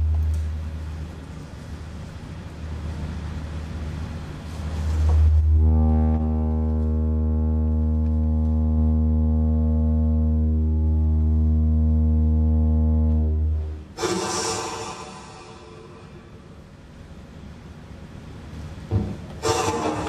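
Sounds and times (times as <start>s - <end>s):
loud low drone: 5.2s - 16.8s
hissing noise: 13.9s - 16.8s, 19.4s - 20.0s.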